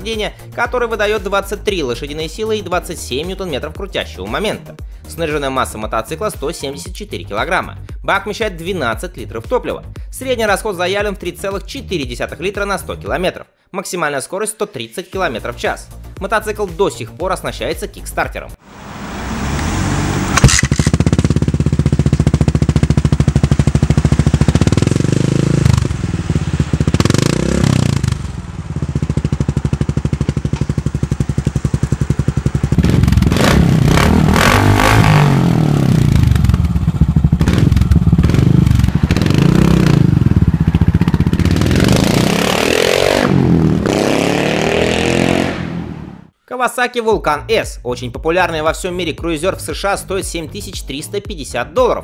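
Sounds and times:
motorcycle engine idling and revving: 0:18.8 - 0:46.3.

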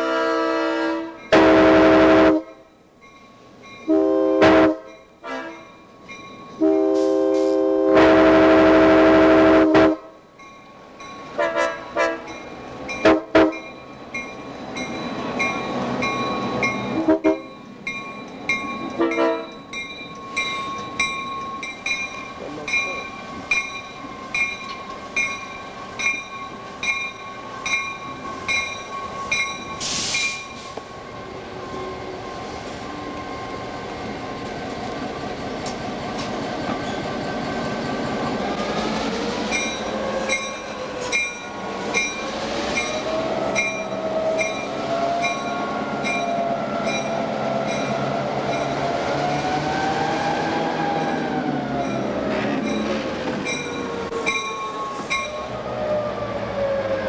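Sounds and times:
diesel locomotive engine: 0:00.0 - 0:57.0
locomotive bell ringing: 0:01.1 - 0:01.6, 0:02.4 - 0:07.6, 0:10.1 - 0:34.5, 0:39.4 - 0:49.0, 0:50.9 - 0:55.7
brief air hiss: 0:29.8 - 0:30.9.

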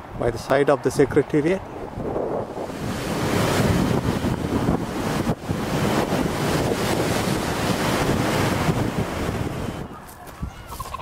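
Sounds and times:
wind buffeting microphone: 0:00.0 - 0:11.0
rough sea rushing: 0:01.7 - 0:10.0.

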